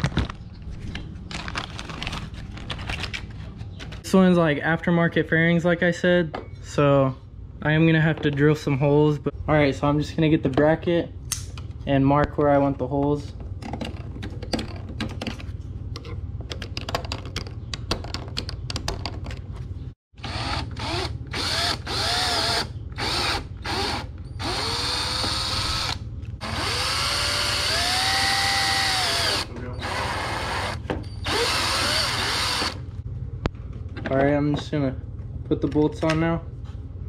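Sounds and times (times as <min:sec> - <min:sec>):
power drill whining: 0:20.2 - 0:32.8.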